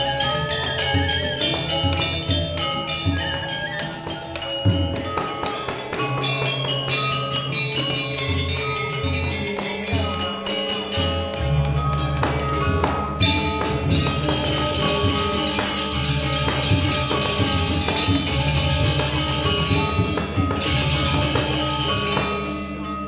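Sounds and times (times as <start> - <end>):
metallophone notes ringing: 0.0 - 23.0
drum strokes: 11.7 - 22.6.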